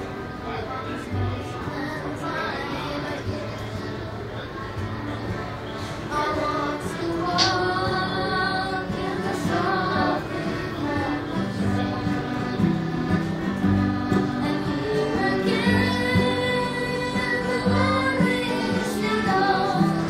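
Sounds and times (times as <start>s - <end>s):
voices singing along: 1.3s - 20.0s
boy singing: 6.1s - 12.6s, 13.7s - 20.0s
piano accordion chords: 7.4s - 20.0s.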